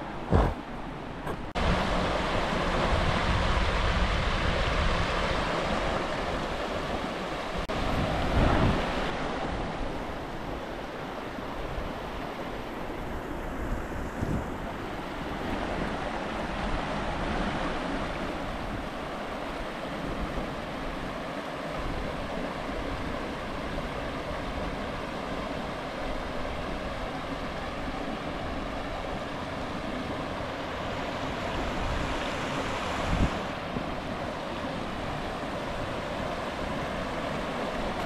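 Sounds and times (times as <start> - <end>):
wind buffeting microphone: 0.0 - 38.0
water rushing over rocks: 1.4 - 12.7.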